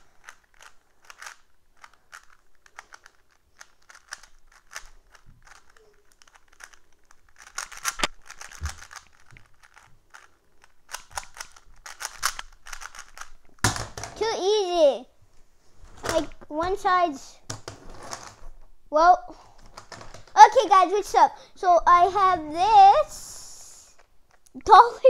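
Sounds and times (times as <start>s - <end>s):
plastic puzzle cube clicking: 0.0s - 14.2s.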